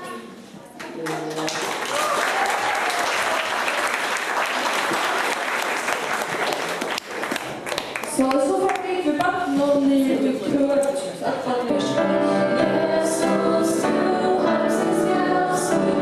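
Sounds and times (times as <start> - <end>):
audience applauding: 0.8 - 8.8.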